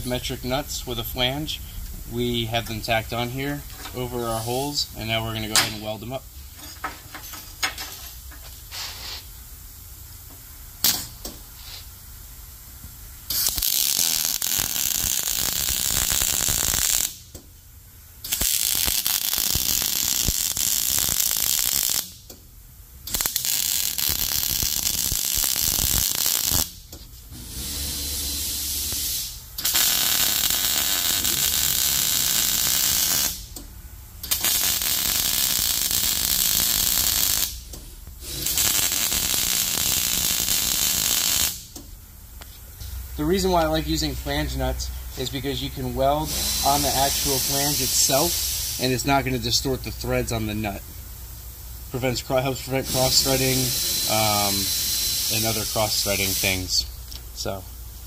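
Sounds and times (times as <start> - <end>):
welder crackling and sizzling: 13.2 - 17.4, 18.2 - 22.3, 23.1 - 33.6, 34.2 - 41.8, 45.2 - 50.8, 51.9 - 57.6.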